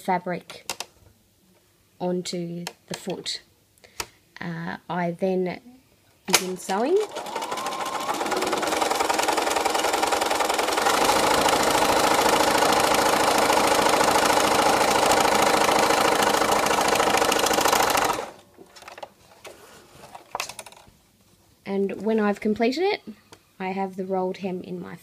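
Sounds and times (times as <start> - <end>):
sewing machine stitching: 6.6 - 19.0.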